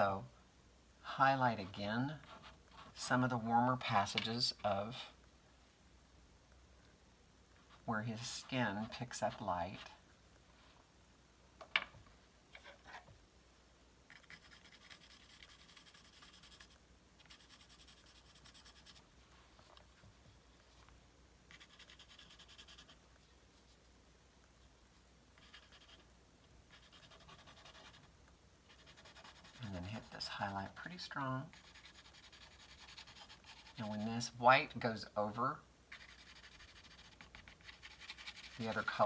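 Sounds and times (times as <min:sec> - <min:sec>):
pastel pencil scratching on paper: 0:02.2 - 0:03.0, 0:14.1 - 0:19.0, 0:21.5 - 0:23.0, 0:25.4 - 0:26.0, 0:26.7 - 0:28.1, 0:28.7 - 0:30.8, 0:31.5 - 0:34.3, 0:35.9 - 0:39.0.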